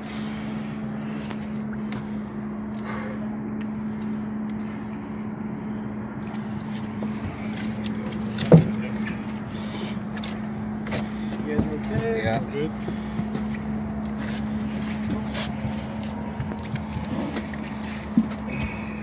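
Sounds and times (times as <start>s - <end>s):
boat motor idling: 0.0s - 19.0s
knocks and clicks of handling: 7.1s - 9.4s.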